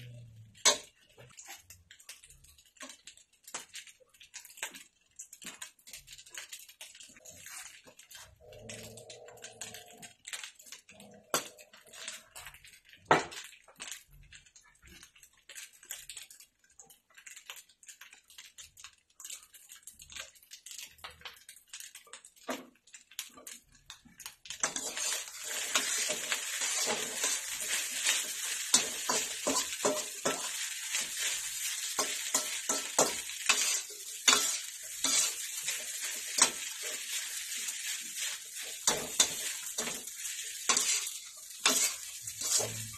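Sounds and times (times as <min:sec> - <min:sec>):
rice sizzling: 0:00.0 - 0:42.9
metal spatula scraping wok: 0:00.4 - 0:01.7, 0:06.1 - 0:12.9, 0:24.6 - 0:42.9.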